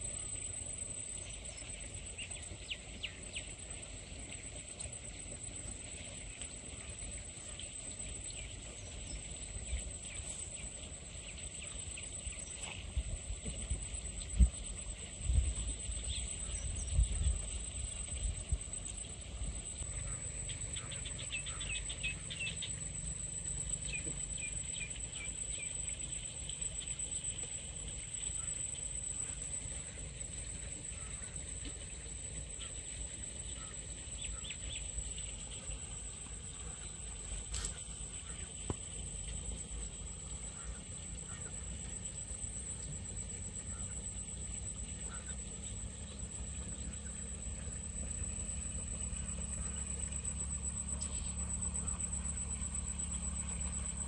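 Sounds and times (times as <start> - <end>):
insect drone: 0.0 - 54.0
bird chirps: 19.9 - 22.9.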